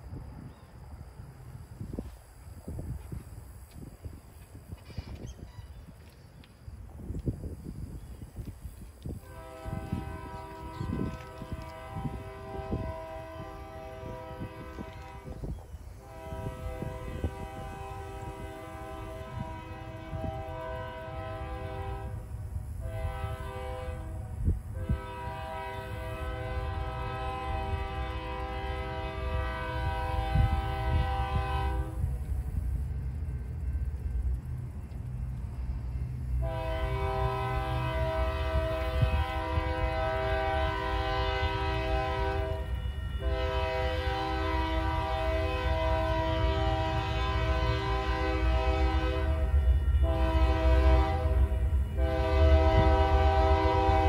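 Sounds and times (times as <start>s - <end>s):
train rumble: 0.0s - 54.0s
locomotive air horn blasts: 9.1s - 32.2s, 36.3s - 54.0s.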